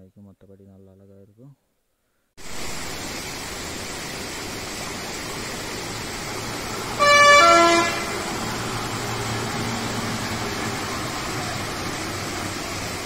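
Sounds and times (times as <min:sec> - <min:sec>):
running water rushing: 0:02.4 - 0:13.0
lorry horn: 0:07.0 - 0:08.2.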